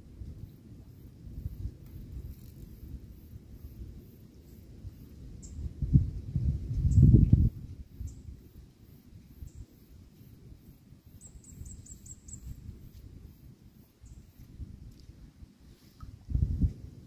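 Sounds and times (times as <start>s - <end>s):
wind on microphone: 0.0s - 10.6s, 11.3s - 17.0s
small bird chirping: 11.1s - 12.7s, 13.9s - 14.5s.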